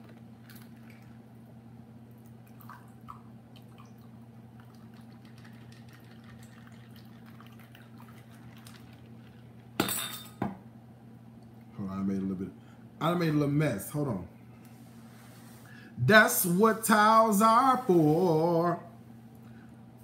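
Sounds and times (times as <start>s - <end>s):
low steady hum: 0.0s - 20.0s
liquid trickling into glass: 2.4s - 9.6s.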